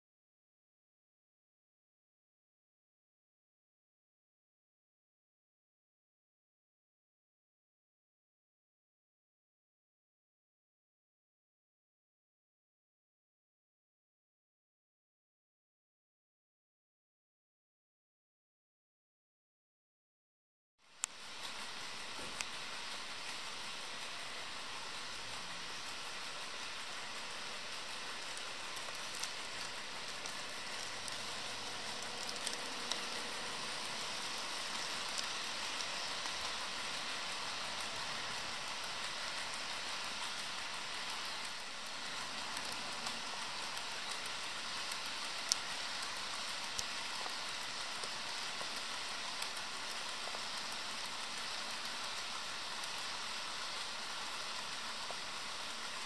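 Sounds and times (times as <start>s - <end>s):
model train wheels whirring: 20.9s - 56.0s.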